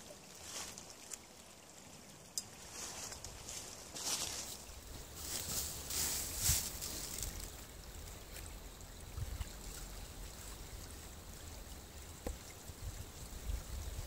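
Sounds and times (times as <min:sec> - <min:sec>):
creek trickling over rocks: 0:00.0 - 0:14.0
rustle: 0:00.0 - 0:14.0
wind on microphone: 0:12.2 - 0:14.0.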